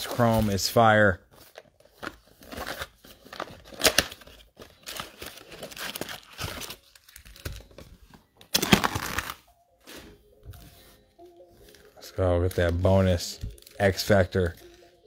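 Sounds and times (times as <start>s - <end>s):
foil card packs crinkling: 0.0s - 9.4s, 11.7s - 15.0s.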